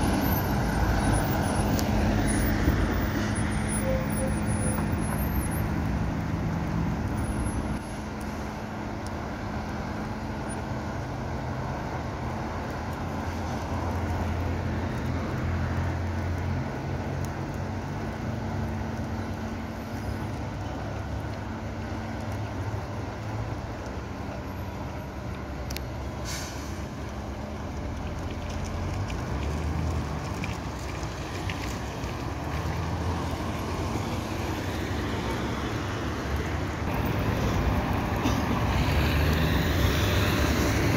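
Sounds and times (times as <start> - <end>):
idling traffic hum: 0.0 - 40.9
air release hiss: 26.2 - 26.8.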